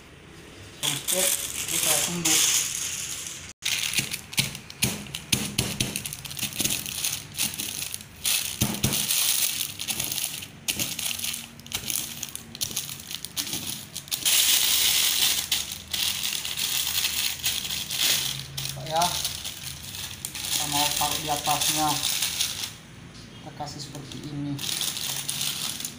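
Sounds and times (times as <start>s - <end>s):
plastic bag crinkling: 0.8s - 22.8s, 24.0s - 25.9s
cookies crunching under rolling pin: 3.6s - 22.8s.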